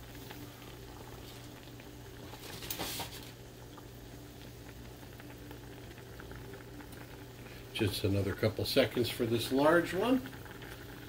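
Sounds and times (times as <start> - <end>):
water boiling and bubbling: 0.0 - 11.0.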